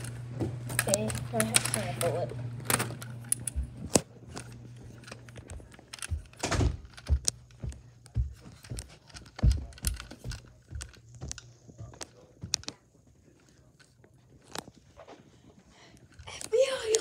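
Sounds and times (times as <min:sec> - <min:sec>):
footsteps on carpeted stairs: 0:03.4 - 0:17.0.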